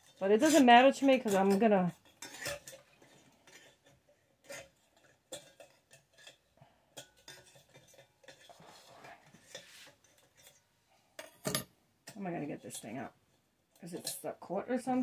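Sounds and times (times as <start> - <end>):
metal clinks and scrapes: 0.0 - 10.6.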